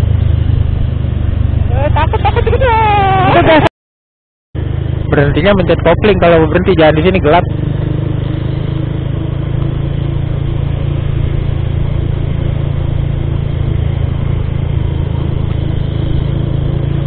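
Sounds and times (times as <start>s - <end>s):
motorcycle engine running: 0.0s - 3.7s, 4.6s - 17.0s
wind and road noise: 0.0s - 3.7s, 4.6s - 17.0s.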